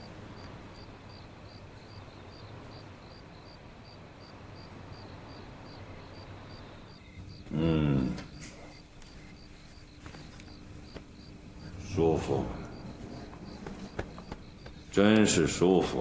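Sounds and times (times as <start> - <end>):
cricket chirping: 0.0 - 16.0
low background hiss: 0.0 - 16.0
man groaning: 7.5 - 8.3.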